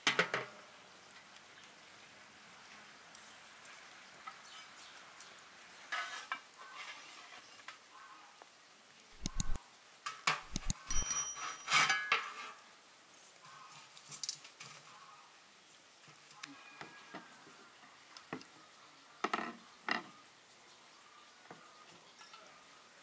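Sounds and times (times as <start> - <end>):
dishes and utensils clinking: 10.6 - 12.5.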